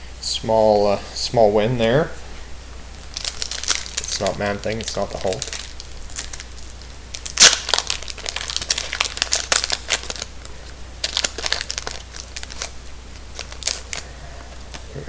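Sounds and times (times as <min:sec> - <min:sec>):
card pack wrapper crinkling: 0:03.0 - 0:15.0.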